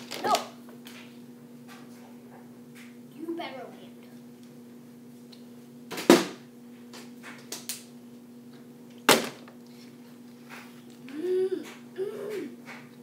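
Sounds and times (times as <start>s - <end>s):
water bottle thudding: 9.1s - 9.5s.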